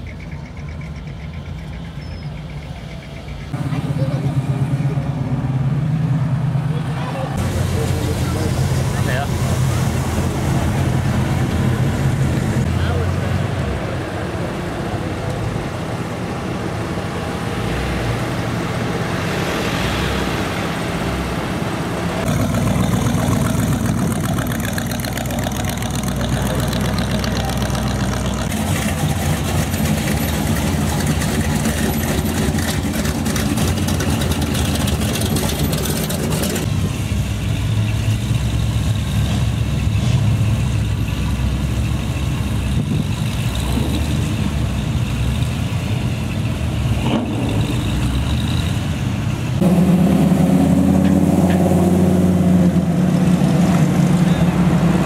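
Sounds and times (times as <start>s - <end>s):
car engines idling and passing: 0.0s - 55.0s.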